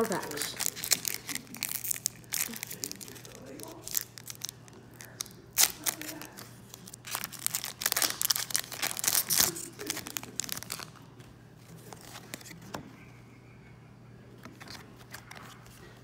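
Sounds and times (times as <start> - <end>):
cards rustling and clicking: 0.0 - 12.8, 14.4 - 16.0
foil wrapper tearing and crinkling: 0.1 - 11.0.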